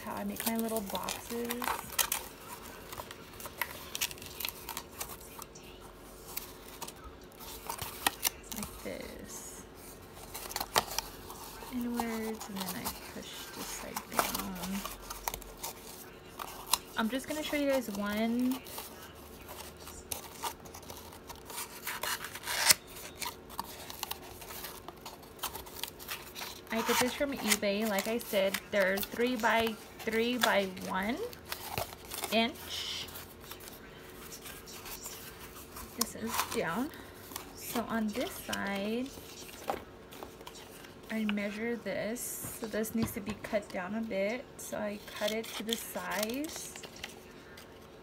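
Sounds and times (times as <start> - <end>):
cardboard box being folded: 0.0 - 5.5, 6.1 - 41.3.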